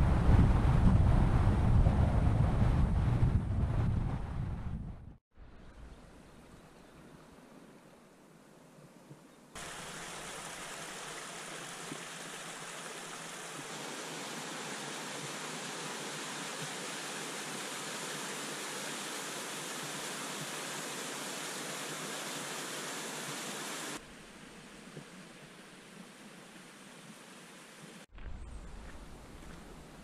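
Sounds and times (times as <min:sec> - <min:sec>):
outdoor ambience: 0:00.0 - 0:30.0
small waterfall splashing: 0:09.6 - 0:24.0.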